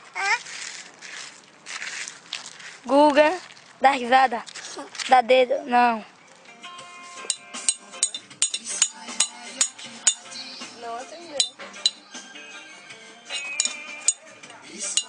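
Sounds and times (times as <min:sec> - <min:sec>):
metallic clinking and tapping: 0:07.3 - 0:10.3, 0:11.4 - 0:12.0, 0:13.3 - 0:14.2.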